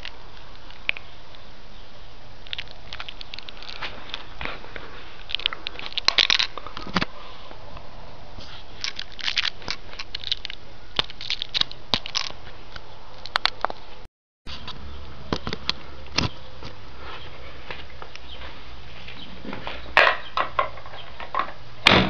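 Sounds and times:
handling clicks taps and scrapes: 2.4s - 7.2s, 8.4s - 13.9s, 14.5s - 16.8s.

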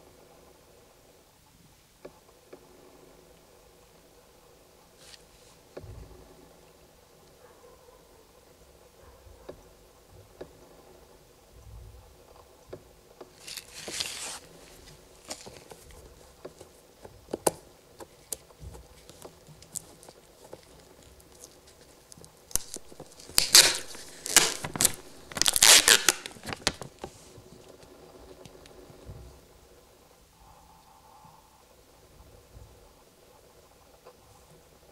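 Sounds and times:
paper label crinkling and peeling: 13.4s - 16.8s, 19.0s - 27.8s.

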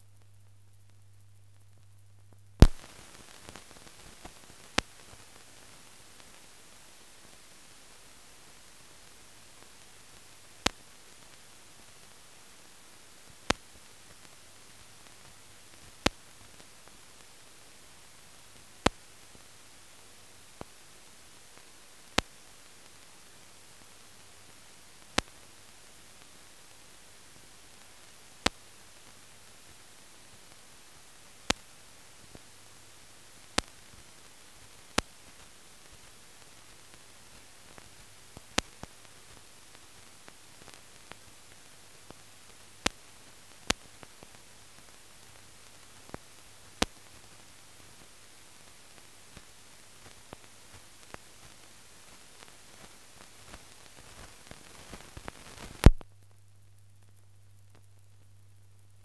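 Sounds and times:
faint low hum: 0.0s - 59.0s
film soundtrack hiss: 0.0s - 59.0s
film clicks and pops: 1.6s - 5.4s, 10.1s - 11.4s, 53.4s - 58.2s.

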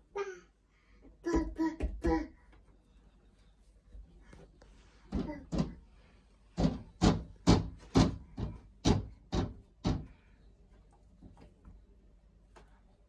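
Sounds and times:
palms slapping a wall: 5.1s - 5.9s, 6.5s - 10.3s.

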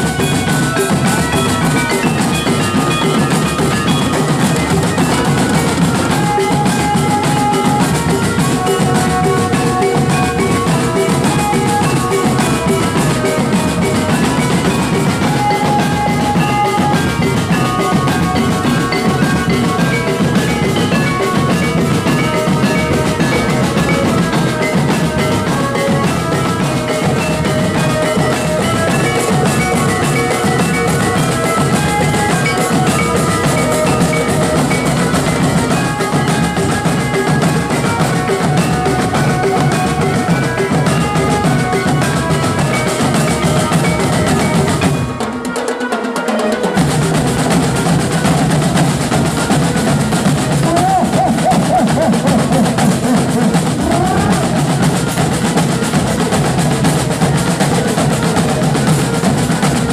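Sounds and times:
marching bass and snare drums: 0.0s - 45.2s, 46.8s - 59.9s
high melodic notes: 0.0s - 45.9s.

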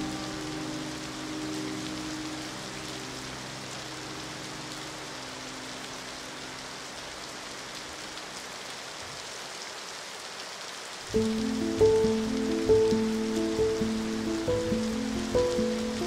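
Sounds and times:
held low music notes: 0.0s - 6.2s, 11.1s - 16.0s
rain falling: 0.0s - 16.0s.

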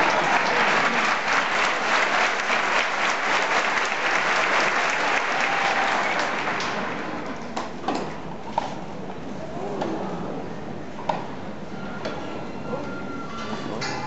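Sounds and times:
crowd applauding: 0.0s - 7.5s.

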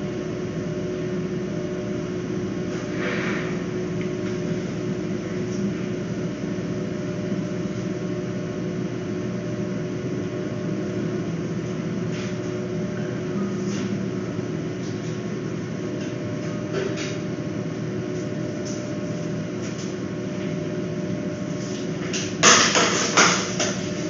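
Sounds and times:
machinery hum: 0.0s - 24.0s.

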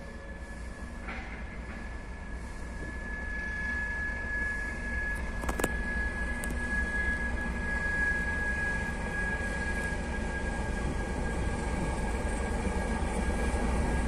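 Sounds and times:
diesel locomotive engine rumble: 0.0s - 14.0s
high-pitched whine: 0.0s - 14.0s.

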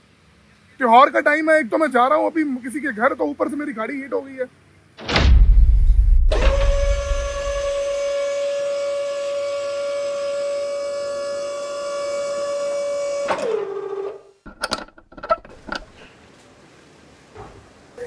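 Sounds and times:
electric motor whining: 6.3s - 8.4s
sharp clicks and knocks: 14.5s - 16.0s.

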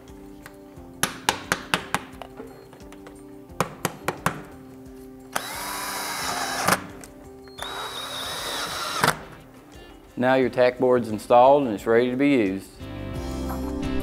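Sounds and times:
hammer tapping on wood: 1.0s - 2.2s, 3.6s - 4.5s
cordless drill whining: 5.3s - 6.9s, 7.5s - 9.4s.

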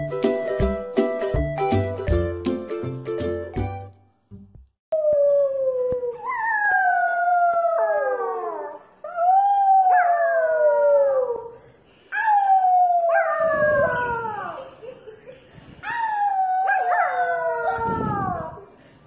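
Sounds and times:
puppy howling: 5.0s - 11.5s, 12.2s - 14.7s, 15.9s - 18.6s.

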